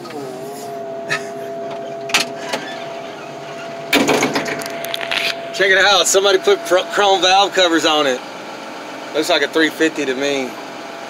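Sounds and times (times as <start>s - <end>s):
hydraulic loader mechanical whine: 0.0s - 11.0s
loud rattling: 1.6s - 9.1s.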